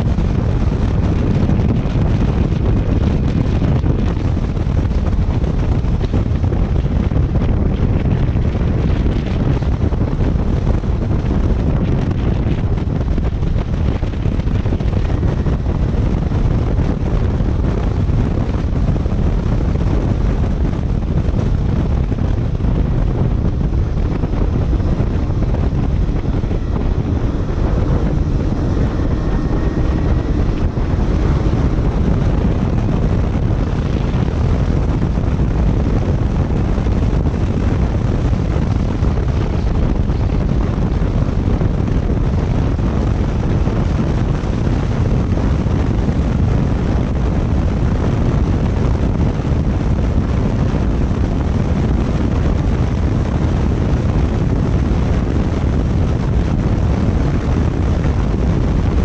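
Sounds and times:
motorcycle engine running: 0.0 - 46.5
wind buffeting on microphone: 0.0 - 59.0.

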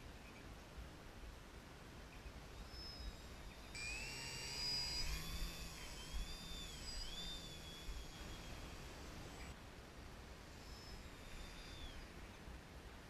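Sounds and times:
electric motor and propeller whine: 2.5 - 9.6, 10.4 - 12.4.

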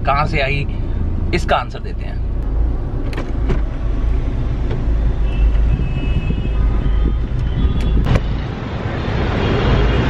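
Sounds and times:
car road noise: 0.0 - 10.0
wind rumble on microphone: 3.4 - 10.0.

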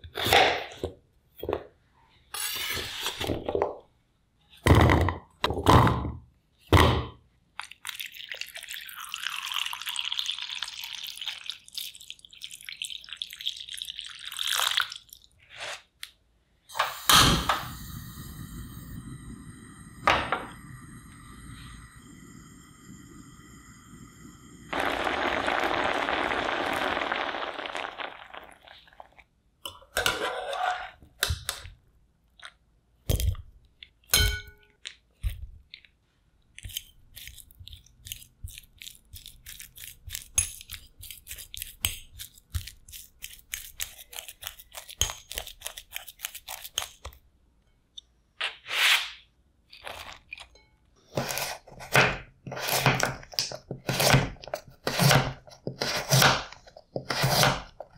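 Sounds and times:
fork mashing potato in glass bowl: 36.6 - 47.2.

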